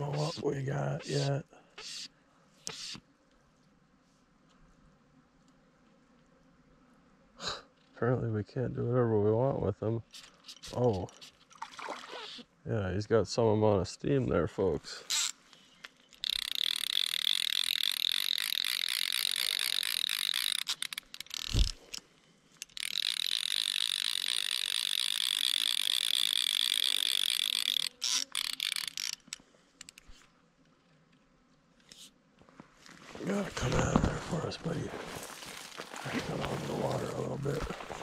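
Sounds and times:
fishing reel drag clicking: 1.1 - 3.0, 15.1 - 30.3, 31.8 - 32.1.

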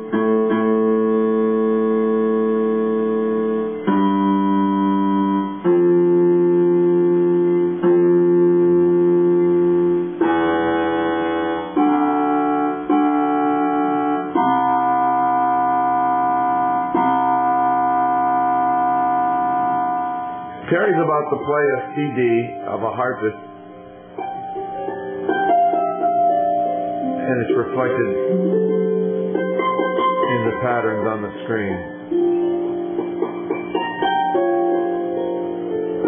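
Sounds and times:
plucked strings sustained notes: 14.8 - 36.0.

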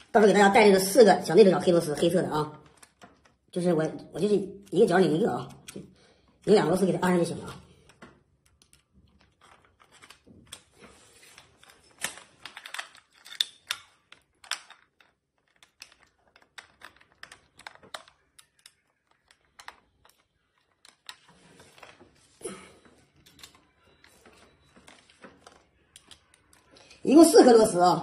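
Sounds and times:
metal screws clicking: 12.4 - 16.0.

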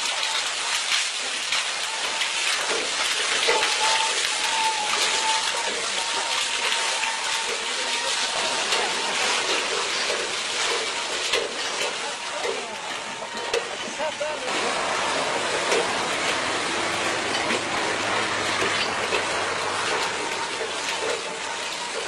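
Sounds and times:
water gushing from pump: 0.0 - 22.0.

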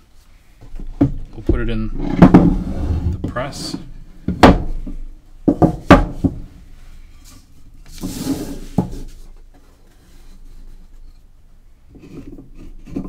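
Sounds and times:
wooden knocks: 4.3 - 6.5.

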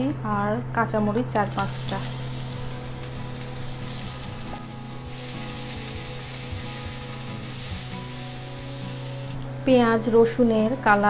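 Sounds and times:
vegetables sizzling in oil: 1.3 - 9.4.

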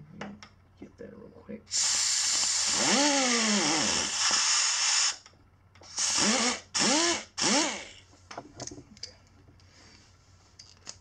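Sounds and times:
air grinder whining: 1.7 - 8.1.

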